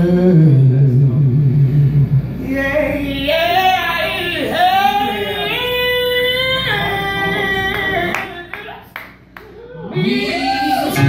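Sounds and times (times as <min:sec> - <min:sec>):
woman singing: 0:02.7 - 0:08.6.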